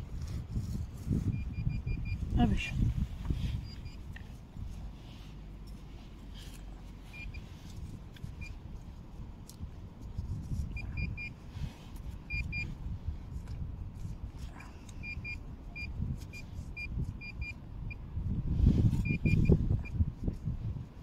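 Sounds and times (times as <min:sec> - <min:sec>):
low rustling rumble: 0:00.0 - 0:14.5
pinpointer short high beeps: 0:01.2 - 0:02.8, 0:03.5 - 0:04.0, 0:07.1 - 0:07.5, 0:10.7 - 0:11.4, 0:12.3 - 0:12.8, 0:15.0 - 0:18.0, 0:19.0 - 0:20.0.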